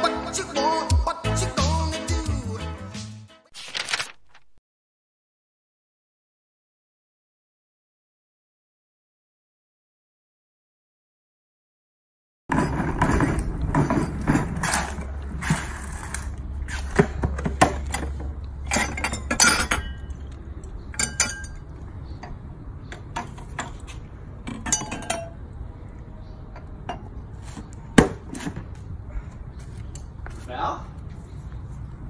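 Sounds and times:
glassware and cans clinking: 17.8s - 20.2s, 20.9s - 21.6s, 24.5s - 25.4s.

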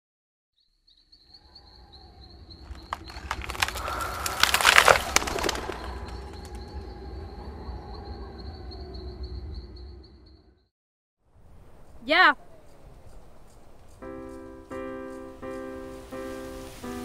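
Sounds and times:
crackling flapping noise: 2.6s - 6.9s, 15.3s - 17.0s.

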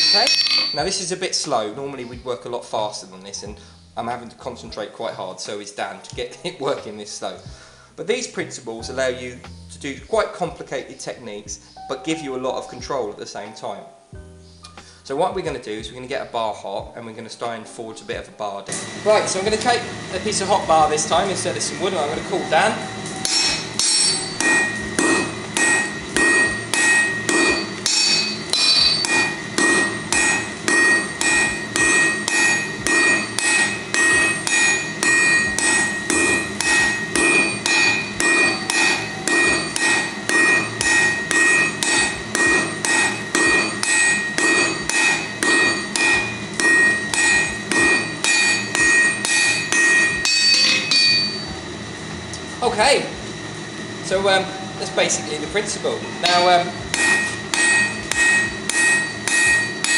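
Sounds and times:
anvil ringing: 0.0s - 1.1s, 20.3s - 51.5s, 56.2s - 59.9s
hammers striking steel on anvil: 0.0s - 1.1s, 18.7s - 51.5s, 56.2s - 59.9s.

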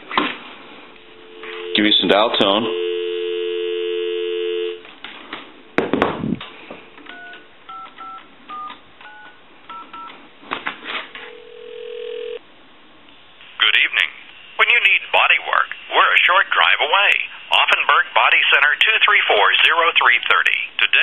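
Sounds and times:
ringback tone: 1.1s - 4.8s
telephone dial tone: 1.3s - 2.0s, 2.6s - 4.8s, 7.1s - 10.1s, 11.2s - 12.4s
thump: 5.8s - 6.5s
touch-tone digits dialed: 7.1s - 10.1s.

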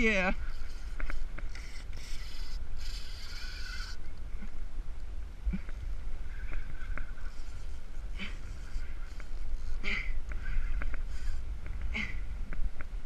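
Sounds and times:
fishing reel drag buzzing: 0.0s - 4.0s, 11.0s - 11.5s
wind rumble on microphone: 0.0s - 13.0s.

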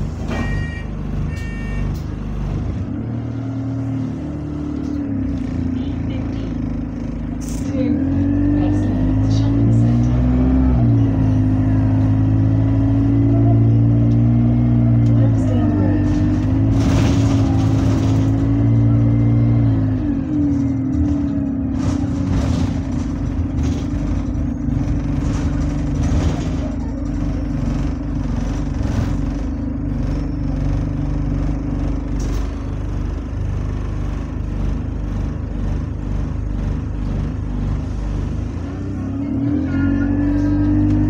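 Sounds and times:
bus engine drone: 0.0s - 41.0s
bus body knocks and rattles: 16.0s - 18.8s, 20.2s - 38.6s.

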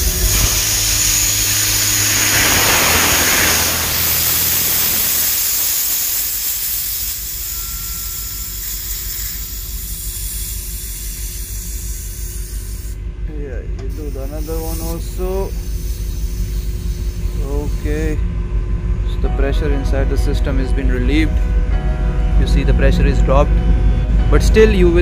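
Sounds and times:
compressed air hissing from valves: 0.0s - 13.0s, 13.9s - 18.2s
low steady hum: 0.0s - 25.0s.

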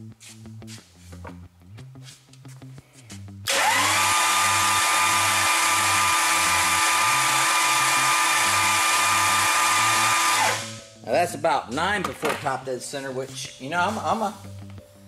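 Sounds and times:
starter motor cranking engine: 3.5s - 10.8s.

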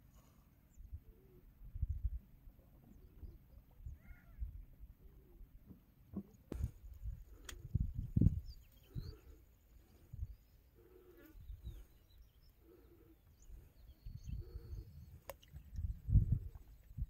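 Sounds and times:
faint bird chirps: 2.7s - 5.4s, 8.0s - 15.8s
distant animal calls: 3.9s - 4.5s
wind buffeting microphone: 6.5s - 9.3s, 13.6s - 17.0s.

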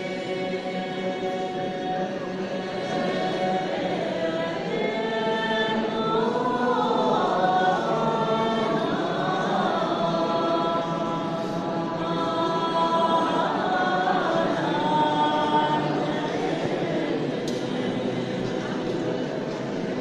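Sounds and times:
mixed choir singing unaccompanied: 0.0s - 20.0s.

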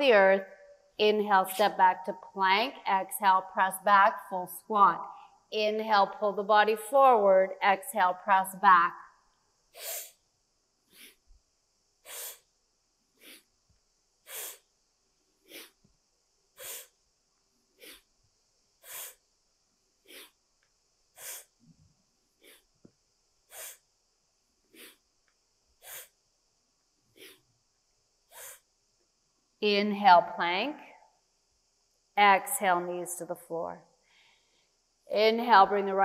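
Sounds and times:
woman breathing hard: 10.9s - 11.2s, 12.0s - 12.5s, 13.2s - 13.5s, 14.2s - 14.7s, 15.4s - 15.8s, 16.6s - 17.0s, 18.8s - 19.2s, 20.0s - 20.4s, 21.2s - 21.6s, 23.5s - 23.8s, 25.8s - 26.2s, 28.3s - 28.6s.

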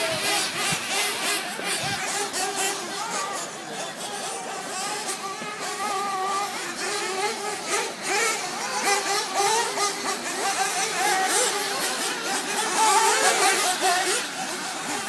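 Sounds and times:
rc car engines screaming: 0.0s - 15.0s.

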